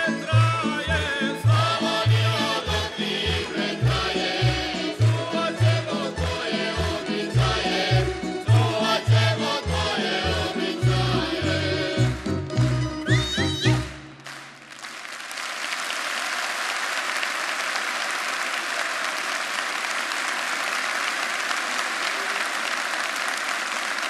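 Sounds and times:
folk song singing and playing: 0:00.0 - 0:13.9
audience applauding: 0:12.6 - 0:24.0.

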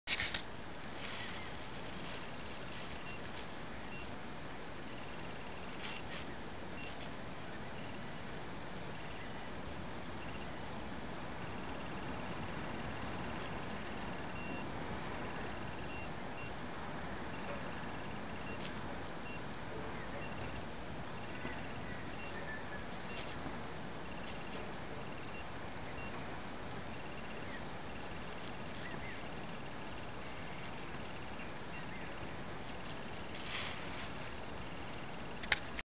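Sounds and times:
outdoor background hiss: 0:00.1 - 0:35.8
faint bird chirps: 0:01.0 - 0:10.7, 0:11.6 - 0:14.7, 0:15.7 - 0:16.6, 0:17.2 - 0:23.4, 0:24.0 - 0:26.2, 0:26.9 - 0:29.4, 0:30.1 - 0:32.4
vehicle reversing alarm beeping: 0:10.2 - 0:10.6, 0:14.3 - 0:14.8, 0:15.7 - 0:16.6, 0:17.3 - 0:19.5, 0:20.1 - 0:20.5, 0:21.2 - 0:23.4, 0:25.0 - 0:26.2.

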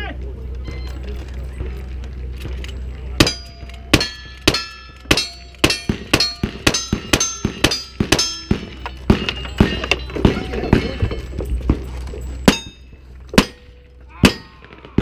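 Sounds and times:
steel plate ringing: 0:03.2 - 0:14.8.

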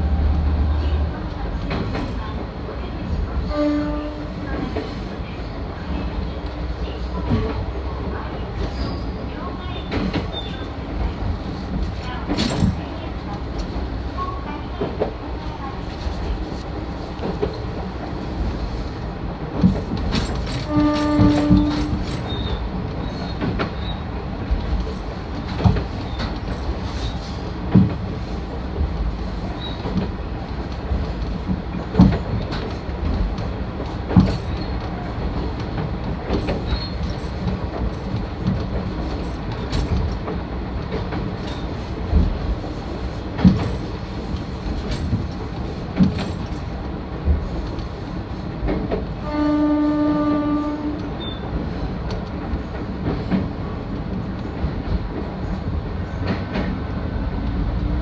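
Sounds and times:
railcar running rumble: 0:00.0 - 0:58.0
train horn blast: 0:03.5 - 0:04.5, 0:20.6 - 0:22.2, 0:49.2 - 0:51.2
wheels clacking over rail joints: 0:19.5 - 0:58.0.

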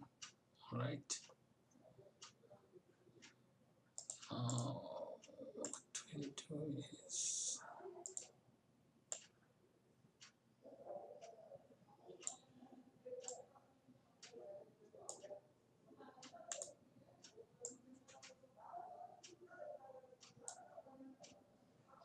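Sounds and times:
computer mouse clicking: 0:04.0 - 0:06.3, 0:08.0 - 0:08.3, 0:09.1 - 0:09.3, 0:13.2 - 0:13.4, 0:15.1 - 0:15.4, 0:16.2 - 0:18.4, 0:19.2 - 0:21.4.

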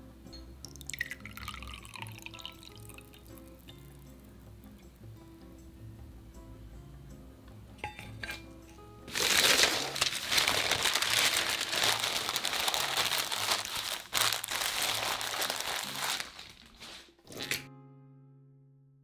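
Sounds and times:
soft background music: 0:00.0 - 0:18.6
newspaper rustling and crinkling: 0:09.1 - 0:17.2.

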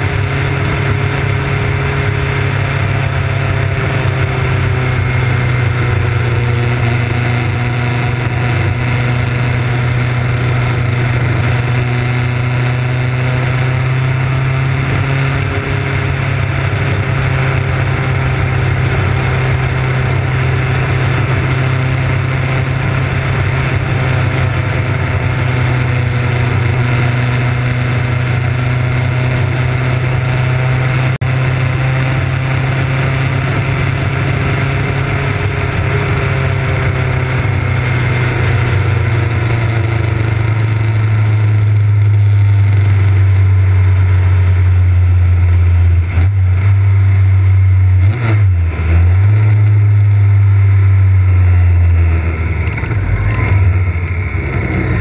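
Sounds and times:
motorcycle engine cruising: 0:00.0 - 0:55.0
wind and road noise: 0:00.0 - 0:55.0.

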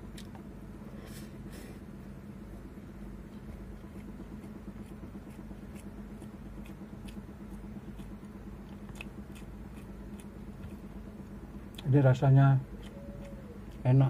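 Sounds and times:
steady low hum: 0:00.0 - 0:14.0
close-up chewing: 0:03.2 - 0:11.9, 0:12.6 - 0:14.0
wet mouth clicks and smacks: 0:07.9 - 0:10.8.

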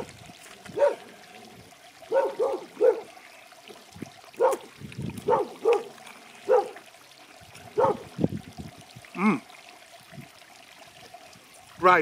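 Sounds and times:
dog barking: 0:00.8 - 0:01.0, 0:02.1 - 0:03.1, 0:04.4 - 0:06.8, 0:07.8 - 0:08.1.

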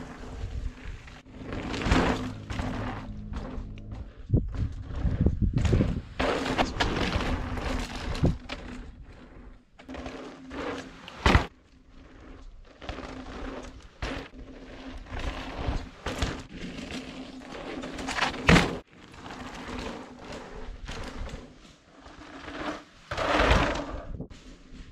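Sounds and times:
bike tyres on dirt trail: 0:00.0 - 0:24.9
bike knocking over bumps: 0:01.4 - 0:08.9, 0:15.0 - 0:17.0.

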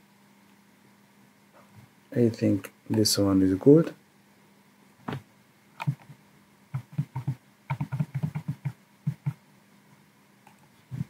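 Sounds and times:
computer mouse clicking: 0:05.8 - 0:09.4.

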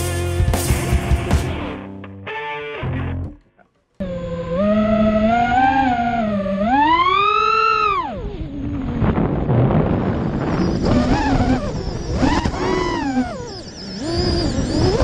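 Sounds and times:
drone motors whining: 0:04.0 - 0:15.0
wind rushing over microphone: 0:07.8 - 0:15.0.

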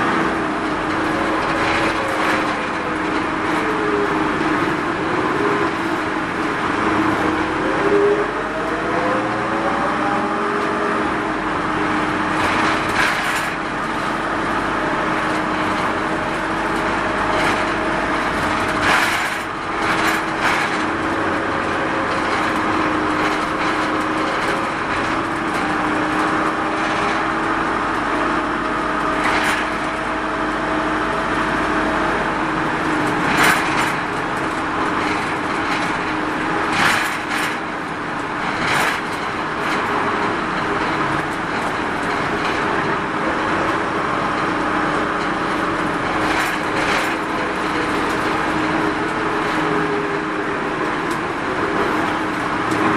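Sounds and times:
minibus engine drone with whine: 0:00.0 - 0:52.9.

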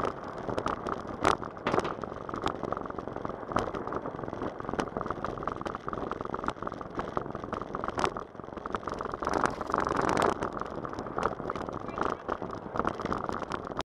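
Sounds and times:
bicycle tyres on wooden planks: 0:00.0 - 0:13.8.

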